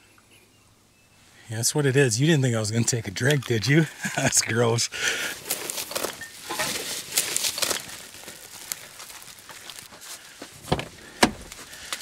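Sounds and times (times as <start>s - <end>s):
litter crinkling and rustling: 2.7s - 12.0s.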